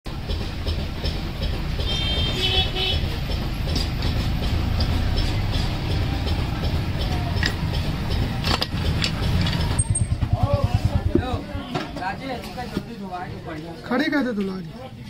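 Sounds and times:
engine rumble: 0:00.1 - 0:12.5
metal clicks: 0:04.8 - 0:10.1.

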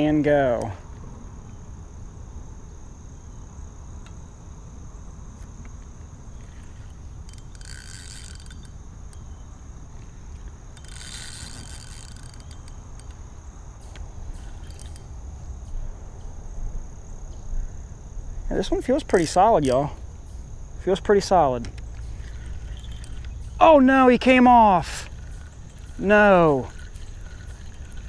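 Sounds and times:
crickets chirring: 0:00.0 - 0:28.0
fishing reel drag paying out line: 0:05.3 - 0:15.9, 0:18.6 - 0:28.0.

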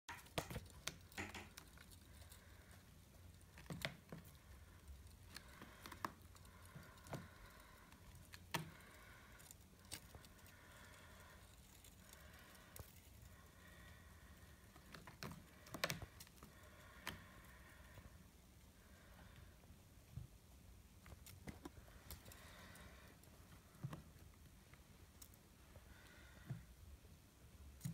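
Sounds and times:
faint clicks and taps: 0:00.1 - 0:18.1.

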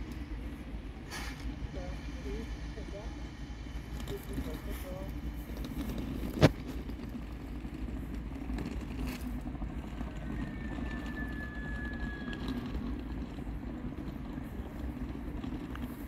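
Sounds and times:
train rumble: 0:00.0 - 0:16.0
faint high squeal: 0:10.1 - 0:12.9.

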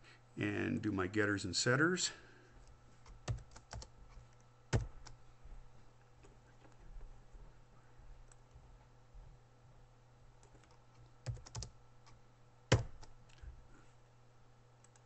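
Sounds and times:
faint low hum: 0:00.0 - 0:15.0
computer keyboard typing: 0:03.0 - 0:03.9, 0:04.7 - 0:05.2, 0:10.4 - 0:11.7, 0:12.7 - 0:13.1.

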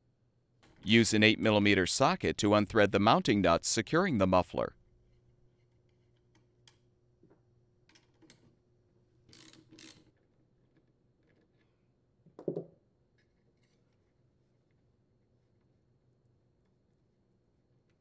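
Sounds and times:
socket wrench clicks and scraping: 0:09.3 - 0:10.2.

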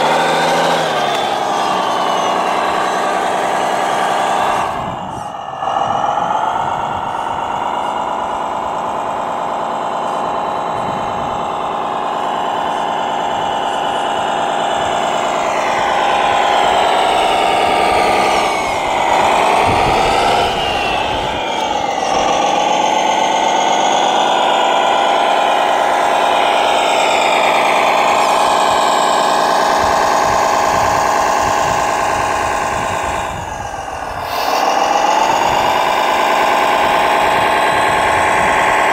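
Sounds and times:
electric motors whining: 0:00.0 - 0:38.9.

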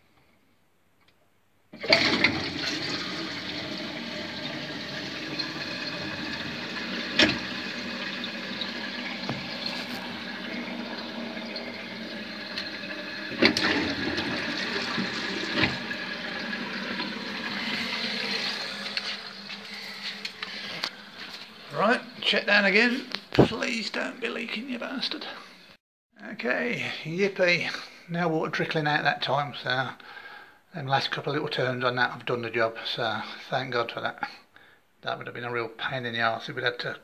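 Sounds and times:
toilet flushing water rush: 0:01.8 - 0:24.1.

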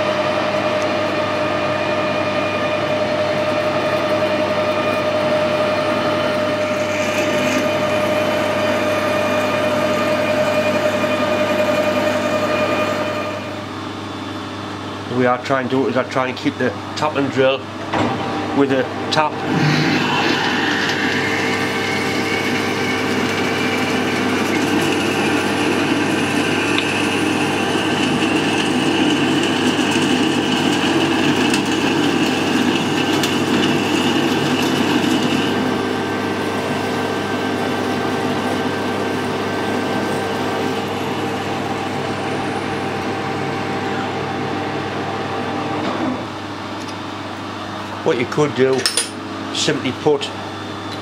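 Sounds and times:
lathe machine hum: 0:00.0 - 0:51.0
drill grinding into steel: 0:04.6 - 0:13.5, 0:19.4 - 0:35.8
high whine: 0:17.0 - 0:30.5.

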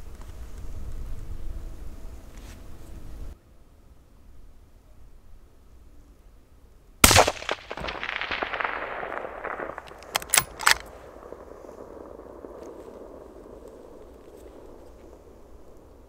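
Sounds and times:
rifle shot with echo: 0:07.0 - 0:15.8
rifle bolt metallic clicks: 0:09.4 - 0:11.0.

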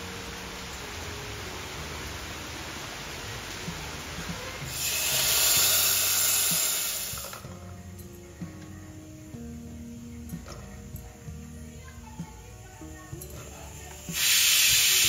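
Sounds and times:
steady rain: 0:00.0 - 0:07.6, 0:12.8 - 0:15.0
hot oil sizzling: 0:00.0 - 0:07.7, 0:12.8 - 0:15.0.

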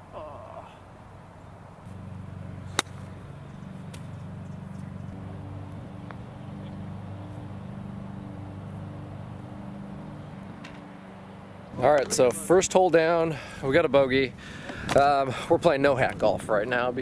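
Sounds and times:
vehicle engine humming: 0:00.0 - 0:17.0.

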